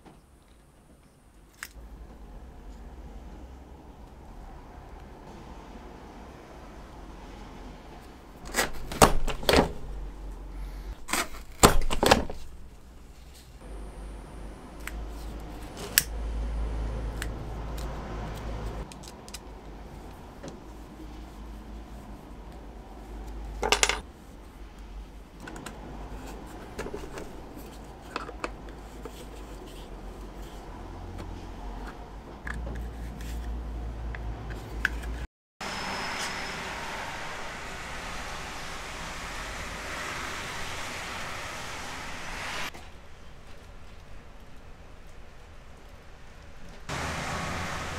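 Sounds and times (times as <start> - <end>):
low steady hum: 12.4 - 17.6.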